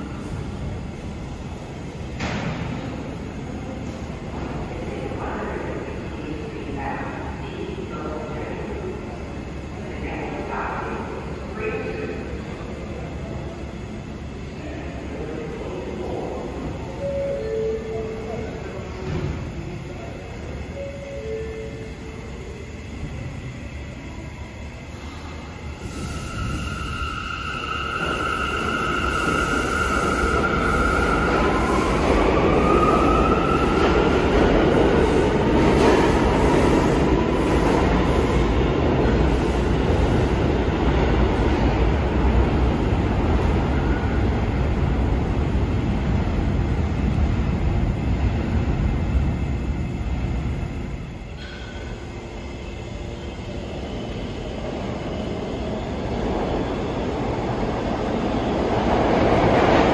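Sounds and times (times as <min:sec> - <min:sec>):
subway train wheels rumbling: 0:00.0 - 0:59.9
train whine: 0:00.0 - 0:59.9.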